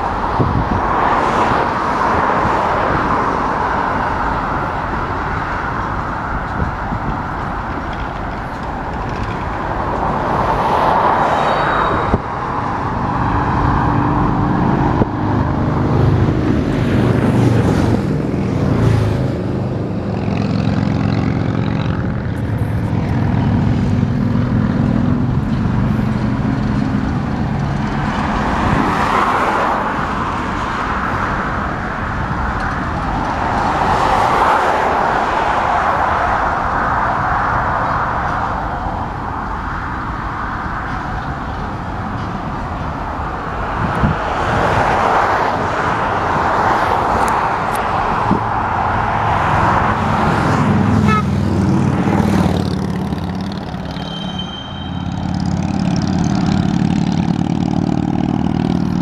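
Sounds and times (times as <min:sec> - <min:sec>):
low engine drone: 0:00.0 - 0:28.9, 0:45.9 - 0:59.0
car road and wind noise: 0:00.0 - 0:59.0.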